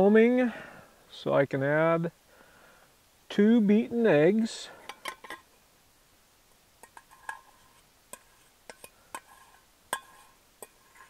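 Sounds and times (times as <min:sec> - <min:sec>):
metal bowls clinking: 0:06.8 - 0:11.0.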